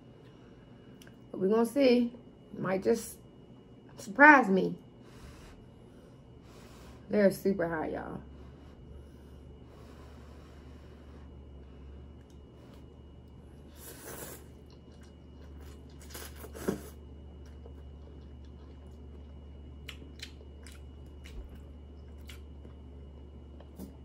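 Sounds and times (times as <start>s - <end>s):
slurping noodles: 13.6s - 14.8s
lip-smacking while chewing: 14.1s - 16.8s, 17.4s - 22.9s.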